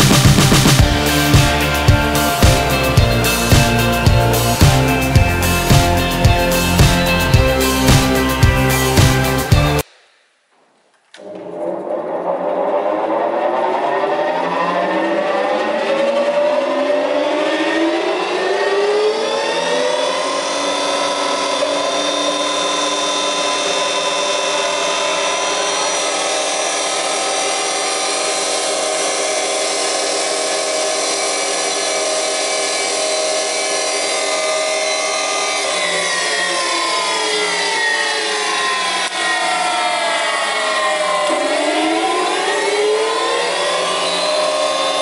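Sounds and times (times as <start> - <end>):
spindle moulder whine: 11.1 - 45.0.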